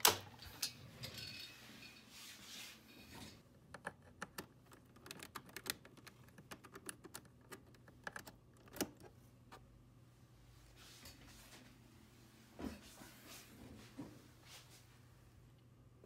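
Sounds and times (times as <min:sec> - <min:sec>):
typing on keyboard: 0:03.8 - 0:09.1.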